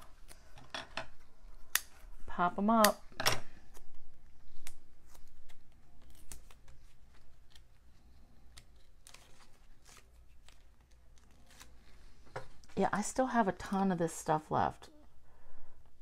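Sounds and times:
paper rustling: 5.0 - 12.2.

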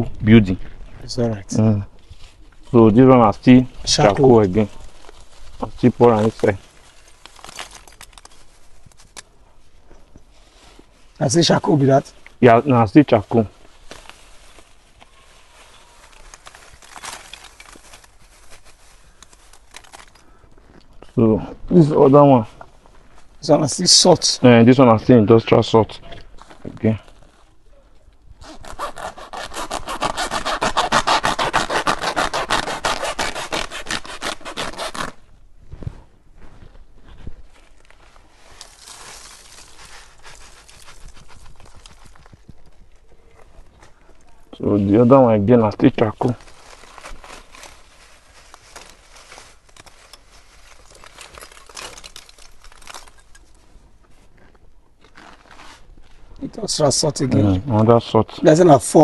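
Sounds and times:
charcoal sack rustling and crackling: 0.7 - 24.0, 28.6 - 57.5
blade sawing plastic sack: 28.4 - 35.2, 38.6 - 42.2.

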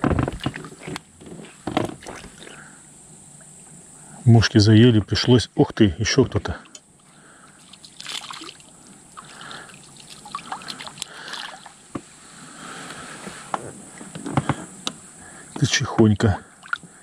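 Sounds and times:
water splashing and trickling: 1.8 - 2.6, 7.4 - 11.8, 16.4 - 17.0.

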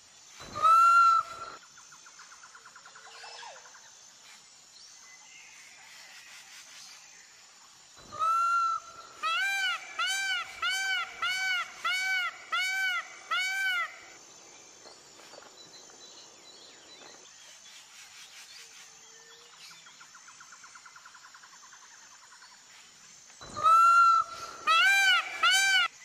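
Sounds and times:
peacock calling: 0.5 - 1.6, 8.1 - 14.2, 23.5 - 26.0.

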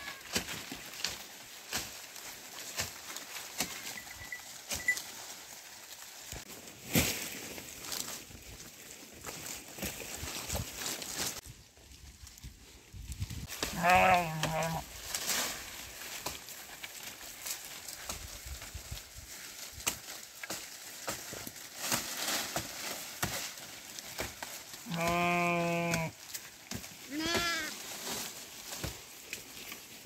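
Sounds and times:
sheep bleating: 13.7 - 14.8, 24.8 - 26.2, 27.1 - 27.8.

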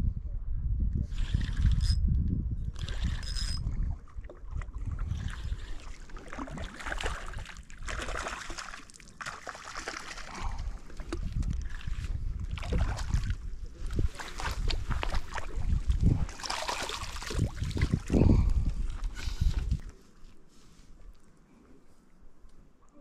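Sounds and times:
wind rumbling on microphone: 0.0 - 8.3, 10.2 - 20.0
water lapping and splashing: 2.8 - 19.8.

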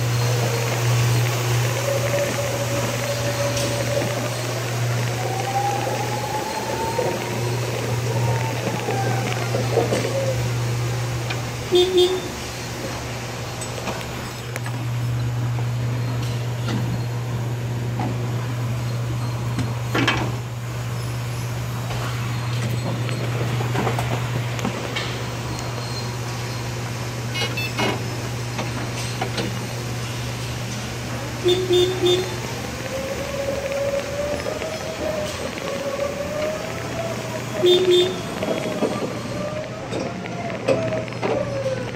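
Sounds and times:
electric forklift humming: 0.0 - 41.9
horn toots: 11.7 - 12.4, 31.4 - 32.5, 37.6 - 38.5.

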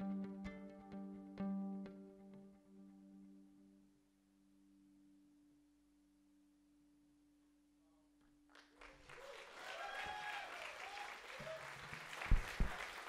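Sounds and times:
audience applause: 8.6 - 13.0.

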